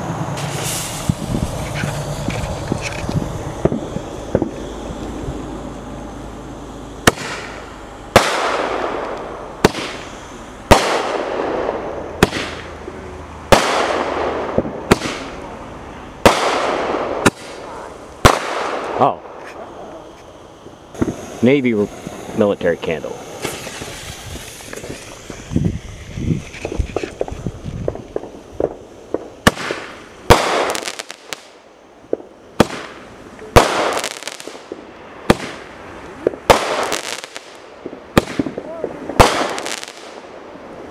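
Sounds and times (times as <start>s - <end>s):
sharp crack: 7.0s - 15.6s, 16.2s - 22.2s, 23.0s - 25.6s, 26.4s - 40.6s.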